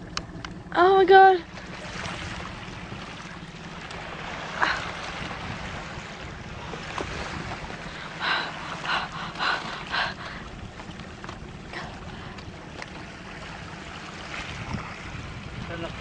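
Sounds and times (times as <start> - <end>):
water around a canoe: 0.0 - 16.0
wind on microphone: 1.8 - 16.0.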